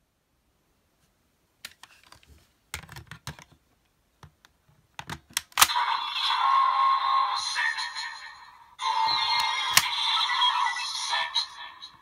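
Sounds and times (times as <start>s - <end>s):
plastic clicks and snaps: 4.2s - 5.8s
toy belt electronic sound effects: 5.7s - 12.0s.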